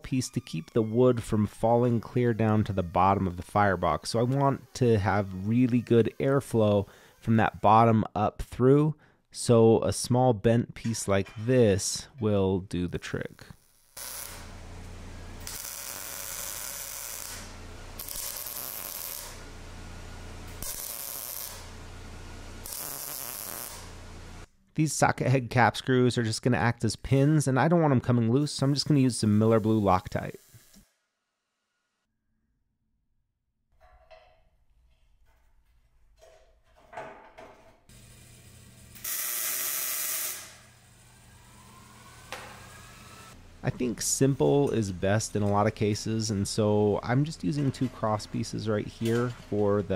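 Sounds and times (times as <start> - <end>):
welding arc crackling: 1.7 - 7.6, 13.5 - 24.5, 37.9 - 44.2
welding machine hum: 2.1 - 7.3, 13.6 - 24.5, 37.9 - 46.1.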